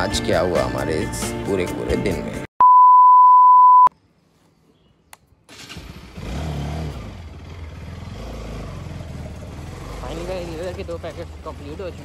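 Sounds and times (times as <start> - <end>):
test-tone beep: 2.6 - 3.9
road and wind noise: 4.8 - 12.0
motorcycle engine running: 5.6 - 12.0.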